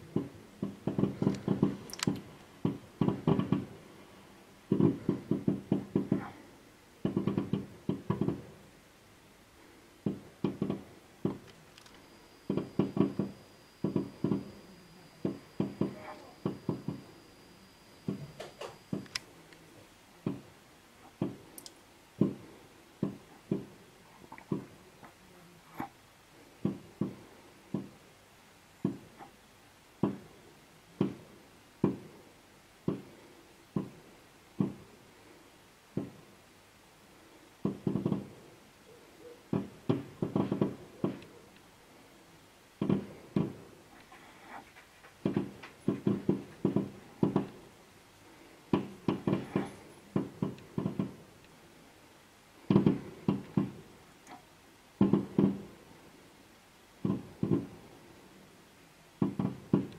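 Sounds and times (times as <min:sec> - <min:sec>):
fireworks bursting: 0:00.1 - 0:04.0, 0:04.7 - 0:06.3, 0:57.0 - 0:57.9.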